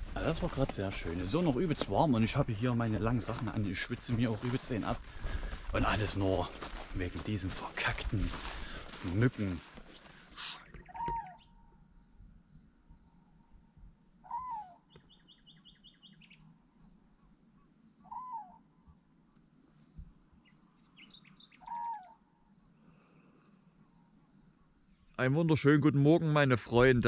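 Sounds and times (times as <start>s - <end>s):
high pulsing insect chirr: 10.6s - 25.0s.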